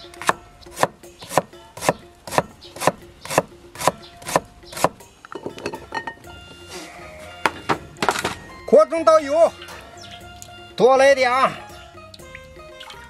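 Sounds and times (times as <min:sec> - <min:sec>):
knife chopping on cutting board: 0:00.2 - 0:05.0.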